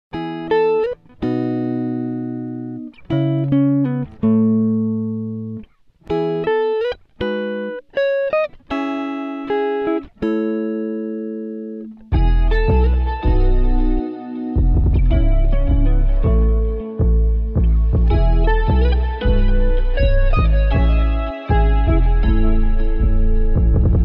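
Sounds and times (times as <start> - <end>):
plucked guitar: 0.1 - 24.0
bass part: 12.1 - 14.0, 14.6 - 24.0.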